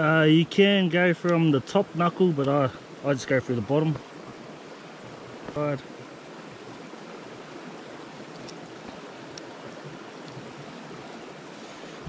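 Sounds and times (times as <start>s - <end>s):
rushing bush ambience: 0.0s - 12.0s
faint ticks: 8.2s - 10.4s.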